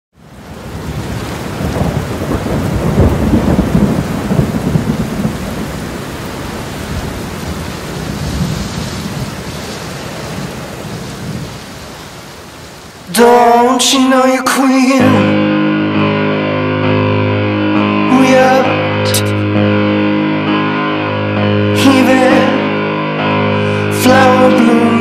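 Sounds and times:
deep water rumble: 0:00.6 - 0:12.0.

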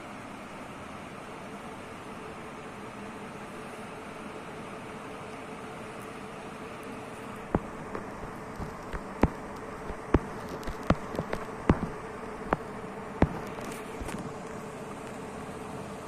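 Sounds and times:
ceiling fans humming: 0:00.0 - 0:16.0
sharp clicks: 0:07.5 - 0:14.2.

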